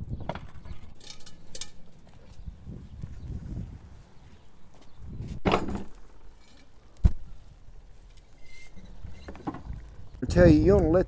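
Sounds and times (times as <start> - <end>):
iron pot clanking on stand: 0.7 - 2.4.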